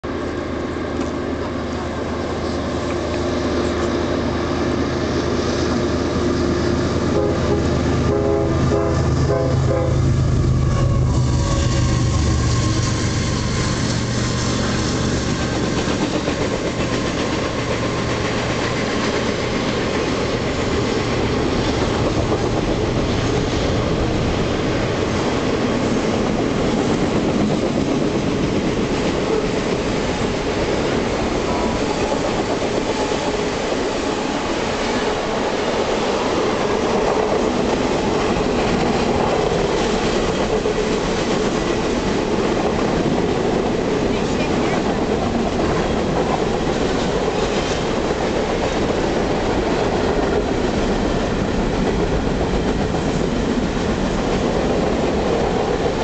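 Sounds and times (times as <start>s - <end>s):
diesel locomotive engine drone: 0.0s - 56.0s
train horn blasts: 6.8s - 14.1s
train wheels clattering: 10.9s - 56.0s.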